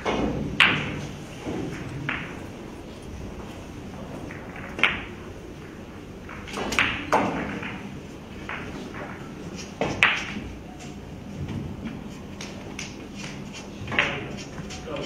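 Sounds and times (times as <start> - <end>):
cue striking ball click: 0.0 - 2.4, 4.3 - 11.0
pool balls clicking: 0.0 - 15.0.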